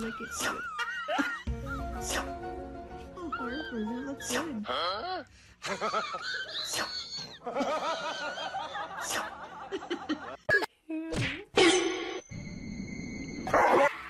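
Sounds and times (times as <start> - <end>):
woman giggling: 0.0 - 1.5.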